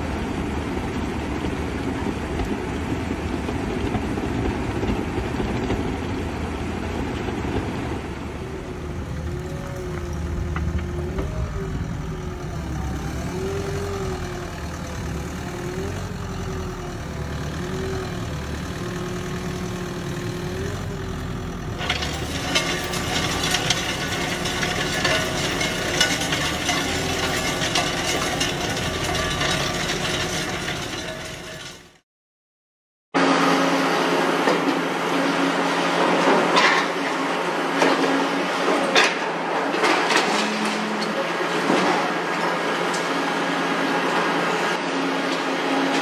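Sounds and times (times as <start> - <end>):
excavator engine running: 0.0 - 32.0
soil and stones clattering: 21.7 - 32.0.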